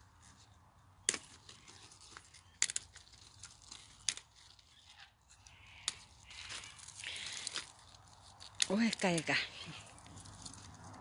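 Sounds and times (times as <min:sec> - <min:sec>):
dry leaves rustling: 0:00.1 - 0:11.0
sharp snaps of stems: 0:01.0 - 0:01.6, 0:02.2 - 0:03.1, 0:03.7 - 0:04.6, 0:05.8 - 0:07.7.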